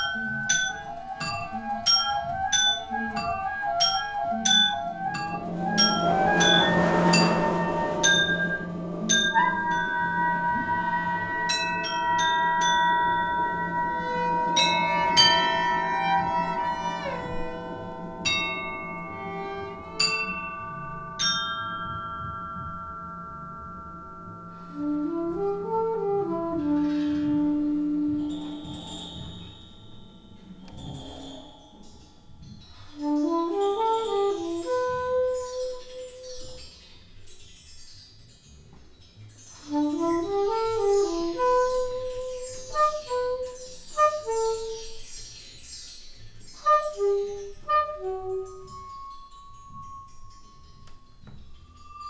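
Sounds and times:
acoustic band playing softly: 0:00.0 - 0:21.2.

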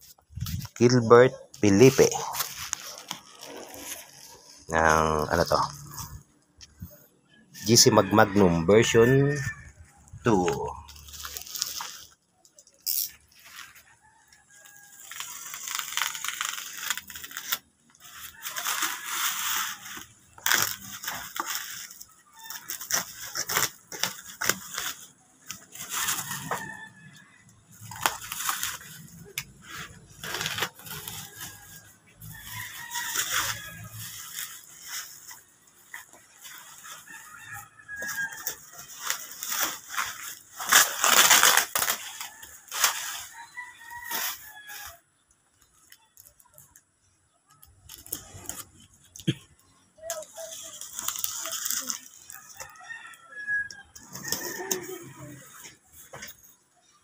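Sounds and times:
bubble wrap crinkling: 0:00.0 - 0:07.0, 0:10.1 - 0:45.0, 0:47.6 - 0:53.3
packing tape ripping: 0:01.7 - 0:04.6, 0:12.7 - 0:13.5, 0:15.0 - 0:26.6, 0:27.8 - 0:31.8, 0:38.3 - 0:43.3, 0:50.1 - 0:52.3.

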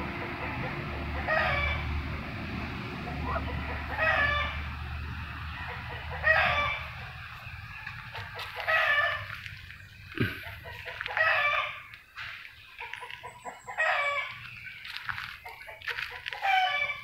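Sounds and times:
low steady rumble: 0:00.0 - 0:12.0
fowl harsh cries: 0:03.2 - 0:04.6, 0:10.4 - 0:11.9.

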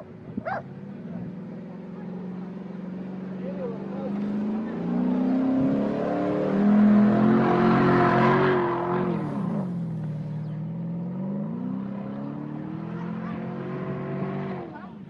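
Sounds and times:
car engine revving: 0:00.0 - 0:15.0.

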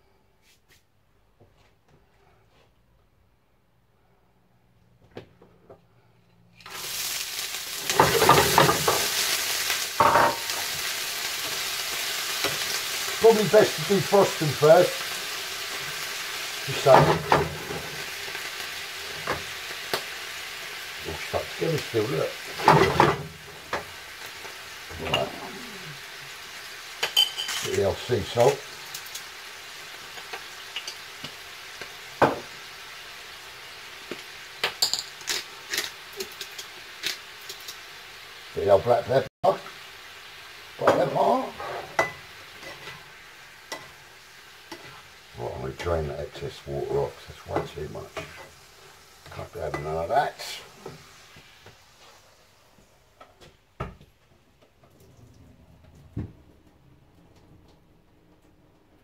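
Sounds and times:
prawns sizzling in a frying pan: 0:06.6 - 0:53.2.

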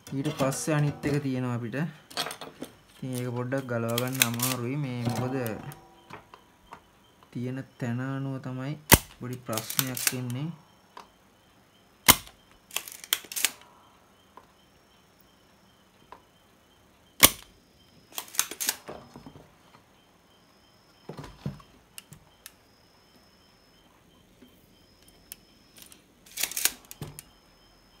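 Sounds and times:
faint steady high tone: 0:00.0 - 0:12.6, 0:18.8 - 0:26.2, 0:26.8 - 0:28.0
sharp snapping clicks: 0:08.9 - 0:10.4, 0:12.1 - 0:13.6, 0:17.2 - 0:17.5.

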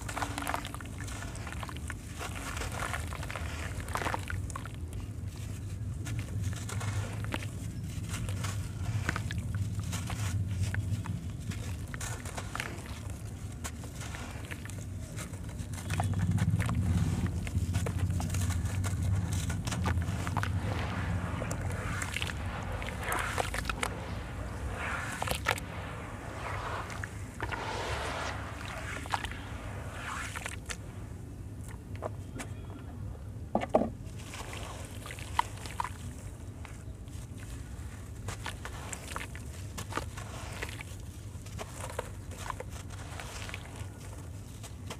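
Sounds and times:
gritty crunches of crumbling cement: 0:00.0 - 0:27.6, 0:34.2 - 0:44.9
steady low hum: 0:04.8 - 0:32.3
hands swishing wet sand: 0:06.7 - 0:31.2
water sloshing: 0:19.5 - 0:31.0.

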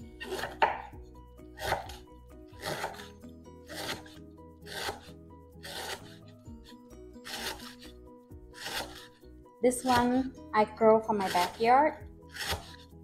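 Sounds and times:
background music: 0:00.0 - 0:13.0
knife slicing crunchy stalks: 0:00.2 - 0:00.9, 0:01.5 - 0:07.9, 0:08.5 - 0:09.2, 0:11.2 - 0:11.7, 0:12.3 - 0:12.9.

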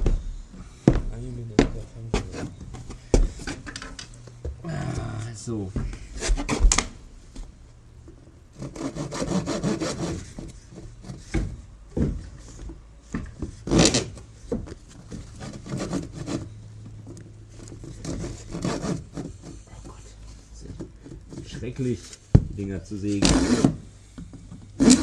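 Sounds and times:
saw cutting wooden dowel: 0:08.6 - 0:11.2, 0:15.2 - 0:16.6, 0:17.7 - 0:19.7, 0:23.2 - 0:23.8, 0:24.7 - 0:25.0.

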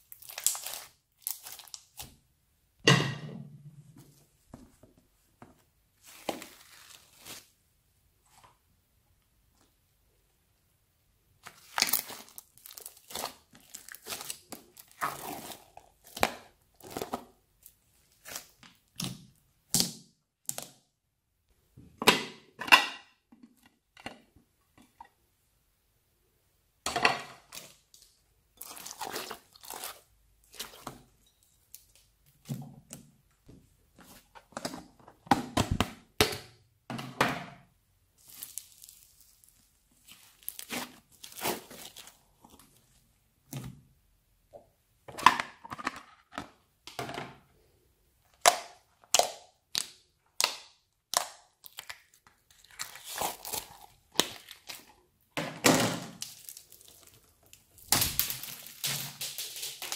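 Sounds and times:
slime squishing and crackling: 0:00.0 - 0:02.2, 0:11.4 - 0:19.2, 0:28.6 - 0:32.0, 0:38.2 - 0:42.8, 0:49.2 - 0:55.0, 0:56.1 - 0:59.9.

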